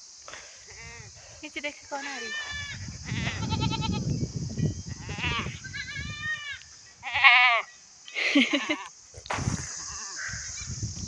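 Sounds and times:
goats bleating: 2.0s - 4.0s, 5.0s - 7.7s.

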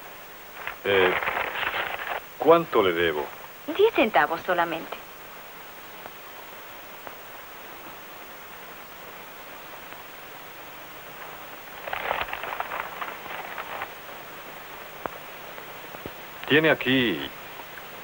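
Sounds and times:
soundtrack hiss: 0.0s - 18.0s
wrapping paper crinkling: 0.6s - 2.3s, 11.8s - 14.6s.

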